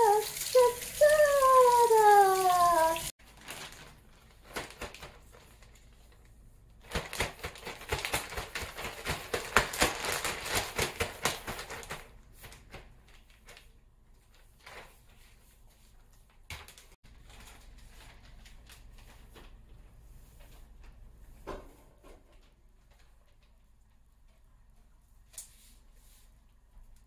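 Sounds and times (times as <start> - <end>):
plastic bag crinkling: 0.0 - 15.2.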